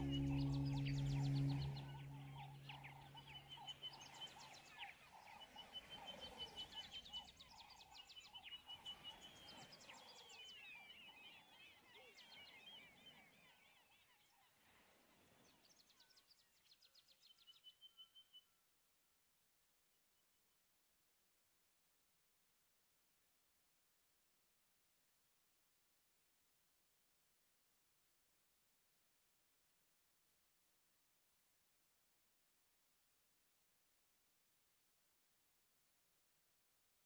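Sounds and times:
background music: 0:00.0 - 0:02.9.

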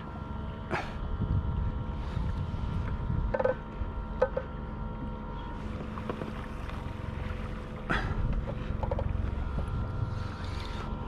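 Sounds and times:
faint steady whine: 0:00.0 - 0:11.0
wind buffeting microphone: 0:01.0 - 0:04.1, 0:05.5 - 0:10.4
water against kayak hull: 0:02.0 - 0:11.0.

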